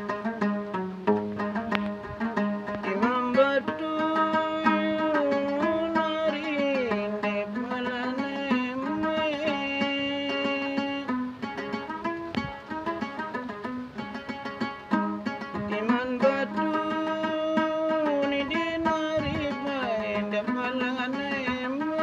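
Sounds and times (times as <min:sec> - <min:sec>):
plucked lute notes: 0:00.0 - 0:22.0
man singing: 0:02.8 - 0:11.3, 0:15.6 - 0:22.0.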